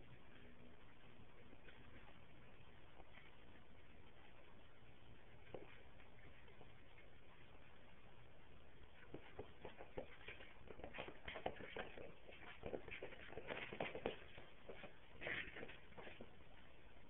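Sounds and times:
dog scuffling on carpet: 9.0s - 16.5s.

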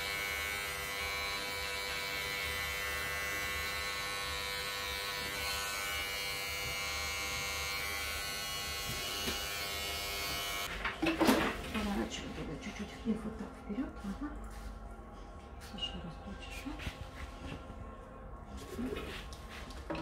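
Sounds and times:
electric hair clipper buzzing: 0.0s - 10.7s.

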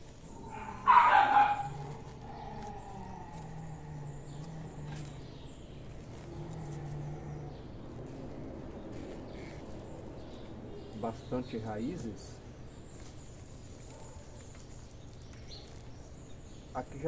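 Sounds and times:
faint low hum: 0.0s - 17.0s
dog barking loudly: 0.5s - 2.0s.

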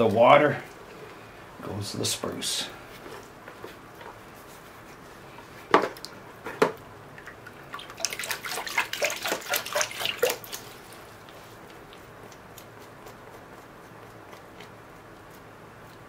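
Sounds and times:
water dripping: 7.1s - 10.9s
water splashing in a bucket: 7.1s - 11.0s.

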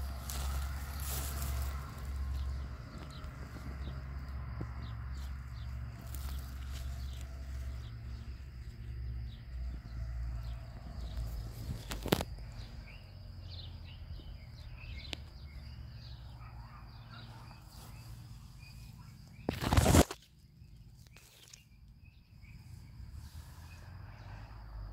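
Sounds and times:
high insect buzz: 0.0s - 16.3s, 17.6s - 24.9s
small birds chirping: 0.0s - 24.9s
loud rustle: 19.4s - 20.3s.

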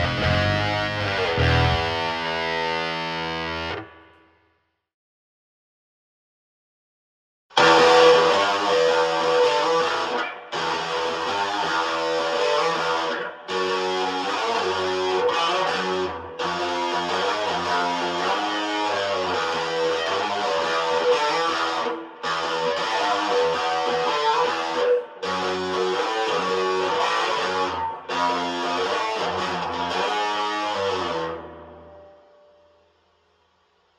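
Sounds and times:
electric guitar chords and riffs: 0.0s - 4.1s, 7.5s - 32.6s.

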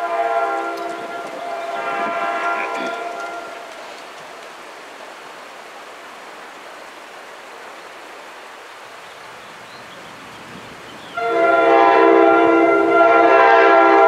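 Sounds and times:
train air horn chord: 0.0s - 3.7s, 11.2s - 14.0s
background hiss: 0.0s - 14.0s.

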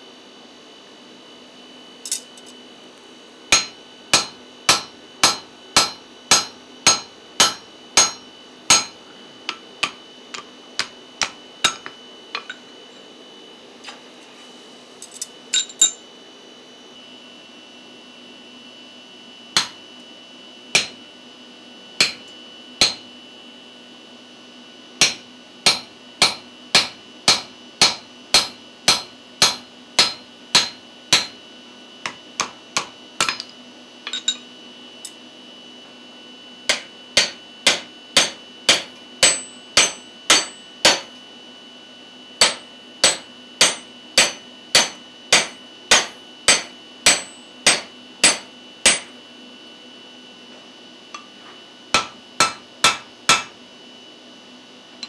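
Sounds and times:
hammer striking metal punch: 3.5s - 12.6s, 19.6s - 19.8s, 20.8s - 21.0s, 22.0s - 23.0s, 25.0s - 31.4s, 32.0s - 33.5s, 36.7s - 41.1s, 42.4s - 49.1s, 51.9s - 53.6s.

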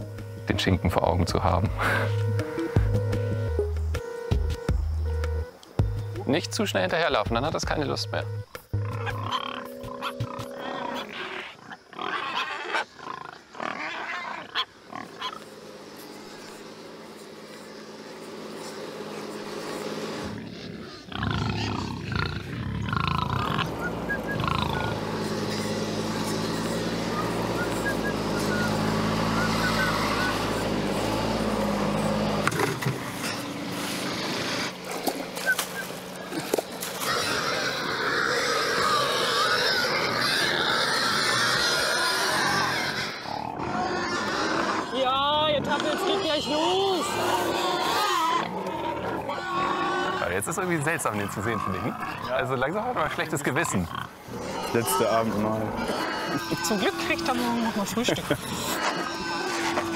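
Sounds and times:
soft music underscore: 0.0s - 11.2s
pigs grunting: 1.3s - 2.2s, 8.7s - 59.9s.

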